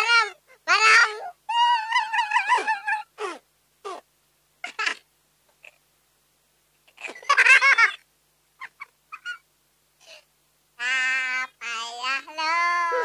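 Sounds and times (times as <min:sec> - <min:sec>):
high-pitched laughter: 0:01.0 - 0:03.2, 0:08.6 - 0:09.4.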